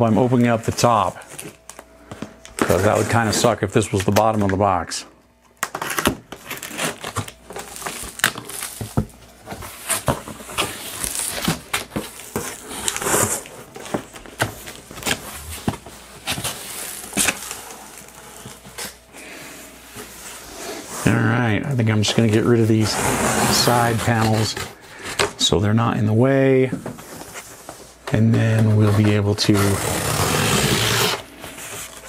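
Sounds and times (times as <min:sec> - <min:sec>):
cardboard scraping and crinkling: 0:02.6 - 0:03.6, 0:05.8 - 0:19.0, 0:22.0 - 0:25.2, 0:26.8 - 0:32.0
packing tape tearing: 0:05.6 - 0:19.0, 0:29.5 - 0:32.0.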